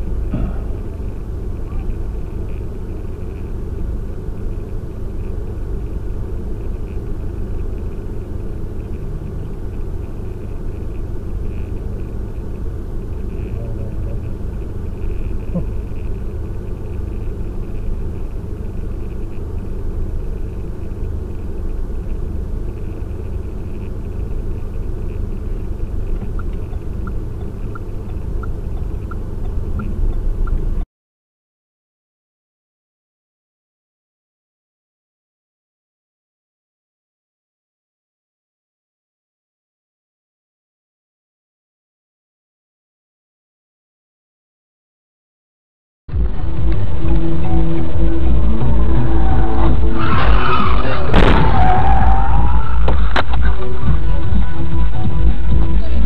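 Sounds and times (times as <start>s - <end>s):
car driving rumble: 0.0s - 30.8s, 46.1s - 56.0s
light regular ticking: 4.4s - 30.8s.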